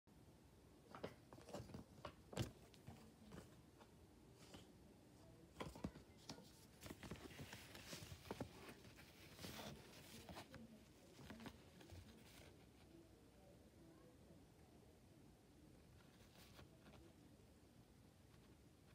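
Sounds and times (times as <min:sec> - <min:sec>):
paper card rustle: 0:05.6 - 0:12.6.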